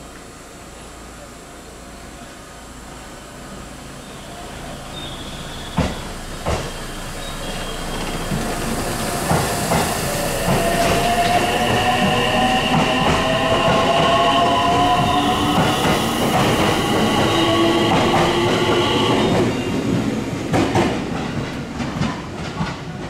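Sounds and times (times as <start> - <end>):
train whine: 0.0 - 23.0
train wheels clacking over rail joints: 5.7 - 6.8, 8.0 - 23.0.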